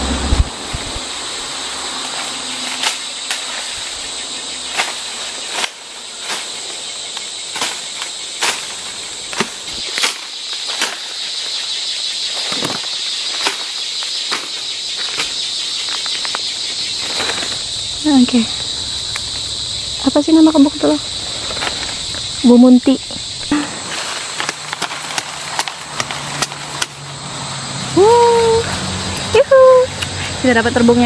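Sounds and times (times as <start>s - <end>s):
insects droning: 0.0s - 31.0s
dry bamboo snapping: 2.0s - 3.8s, 4.7s - 6.5s, 7.1s - 11.2s, 12.3s - 17.7s, 23.4s - 27.1s.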